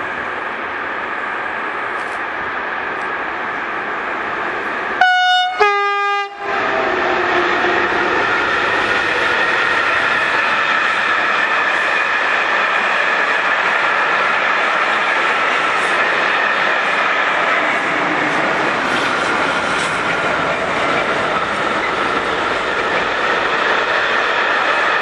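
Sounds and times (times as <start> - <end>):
train wheels rumbling on rails: 0.0 - 25.0
two-tone locomotive horn: 5.0 - 6.9.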